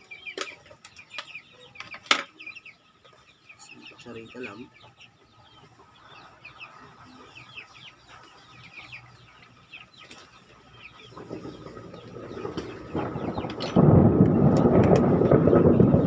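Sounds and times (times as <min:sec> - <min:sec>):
chicks peeping: 0:00.0 - 0:16.0
low rumble of thunder: 0:11.2 - 0:16.0.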